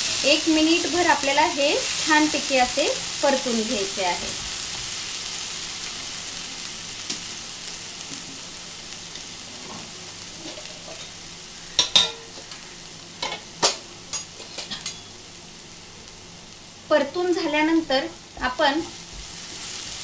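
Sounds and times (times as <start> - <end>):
paste sizzling in hot oil: 0.0 - 13.2, 14.1 - 20.0.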